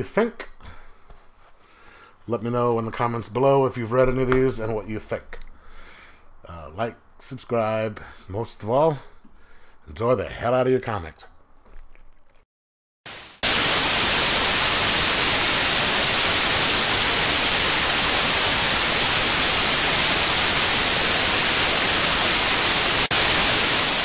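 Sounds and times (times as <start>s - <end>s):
loud static hiss: 13.1s - 24.0s.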